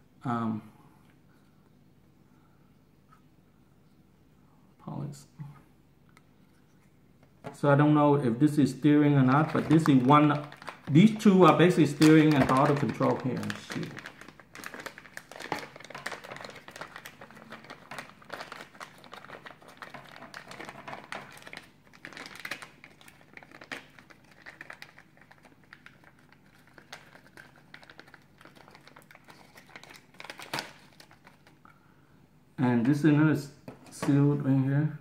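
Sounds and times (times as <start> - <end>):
plastic bags crinkling: 9.2 - 31.7.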